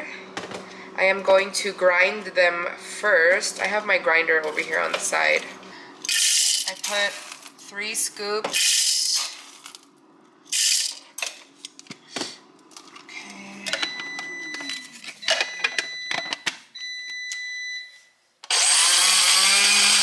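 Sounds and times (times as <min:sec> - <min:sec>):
coffee grinder grinding: 0:04.4 - 0:07.7, 0:10.5 - 0:11.1, 0:18.5 - 0:20.0.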